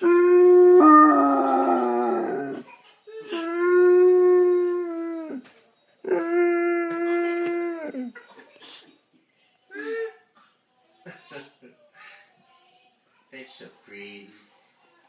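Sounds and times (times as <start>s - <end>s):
dog howling: 0.0s - 2.6s, 3.3s - 5.4s.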